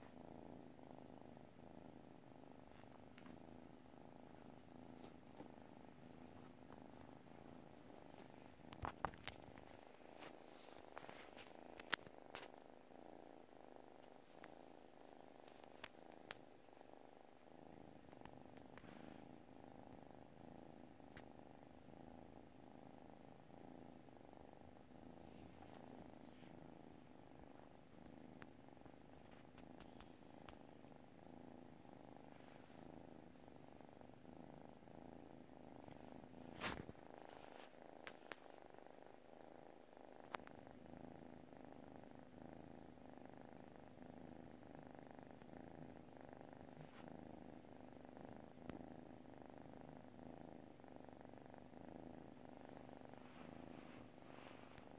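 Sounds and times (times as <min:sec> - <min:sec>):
kitten purring: 0:00.0 - 0:54.9
faint clicks: 0:15.4 - 0:16.5.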